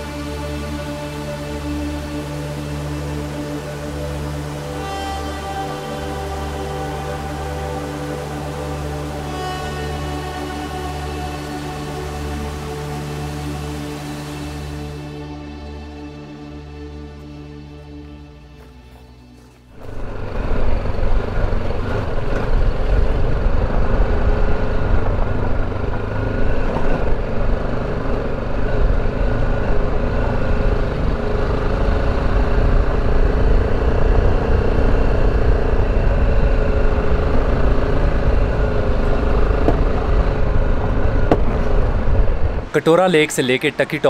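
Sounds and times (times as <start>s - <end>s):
motorcycle engine running: 19.7s - 42.7s
wind rumble on microphone: 19.8s - 42.8s.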